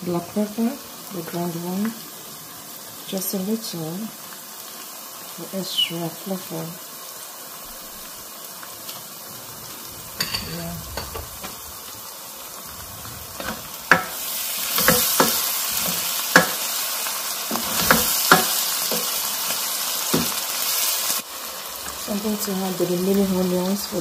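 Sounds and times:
sauce sizzling in a pan: 0.0 - 24.0
spoon knocking against pan: 13.9 - 14.2, 14.8 - 16.6, 17.5 - 19.1.

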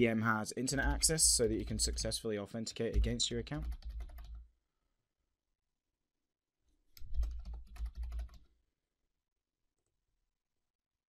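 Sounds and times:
typing on keyboard: 2.9 - 4.4, 7.0 - 8.5.

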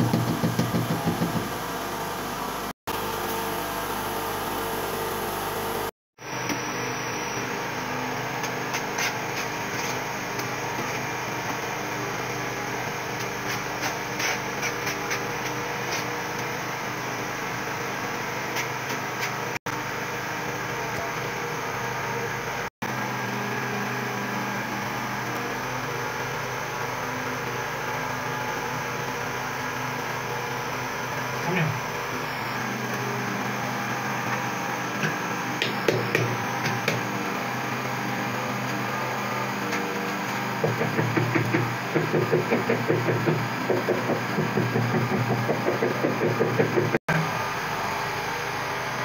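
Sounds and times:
mechanical hum and hiss: 0.0 - 49.0
adhesive scraping on tile: 13.2 - 16.1.

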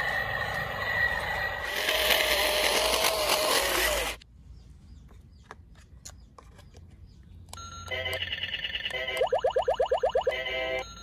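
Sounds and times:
toy motors and gears whirring: 0.0 - 4.2.

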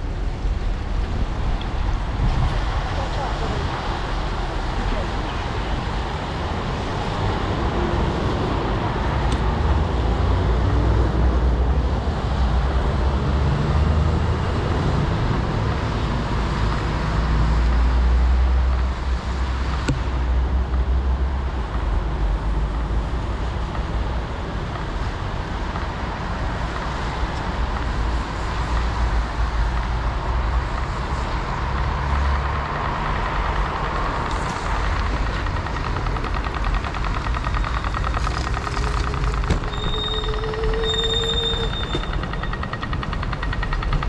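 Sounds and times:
traffic on wet road: 0.0 - 44.0.

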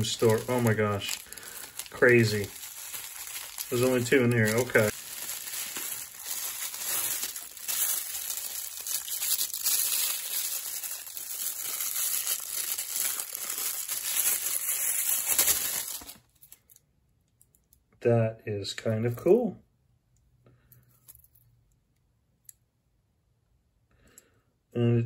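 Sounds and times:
bubble wrap crinkling: 0.0 - 16.6.

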